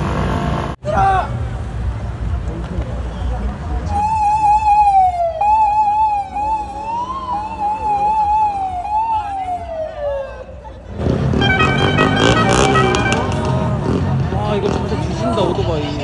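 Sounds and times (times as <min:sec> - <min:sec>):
police siren warbling: 0:04.0 - 0:10.6.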